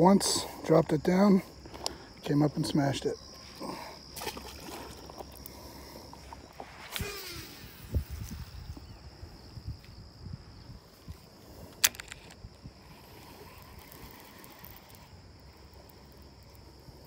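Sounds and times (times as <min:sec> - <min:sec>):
insects chirring: 0:00.0 - 0:17.0
fishing reel click: 0:11.7 - 0:15.1.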